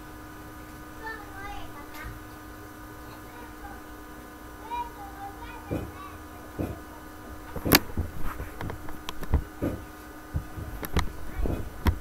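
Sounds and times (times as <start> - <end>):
faint steady hum: 0.0 - 12.0
sharp knocks and clicks: 5.7 - 6.0, 6.6 - 6.8, 7.5 - 12.0.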